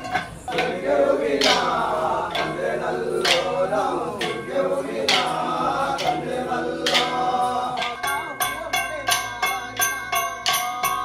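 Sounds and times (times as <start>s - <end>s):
wooden sticks clacking: 0.0s - 11.0s
men chanting in chorus: 0.5s - 8.5s.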